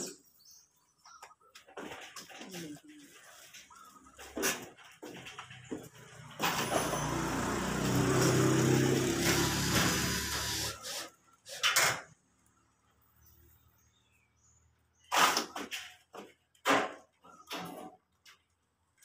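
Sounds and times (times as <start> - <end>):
cordless drill driving a screw: 6.4 - 11.1.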